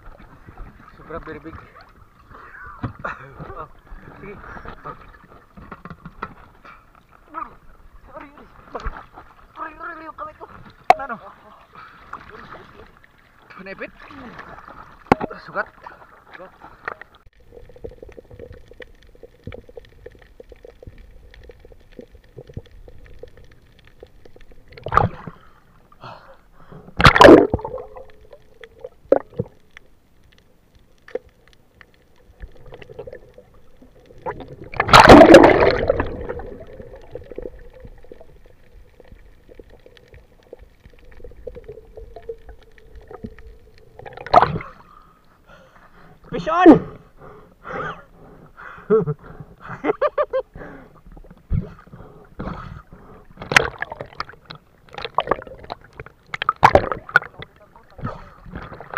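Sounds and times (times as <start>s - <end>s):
faint steady hum: 0.0s - 58.9s
gurgling water rushes: 17.0s - 25.6s, 26.9s - 29.7s, 32.2s - 44.9s, 51.0s - 58.9s.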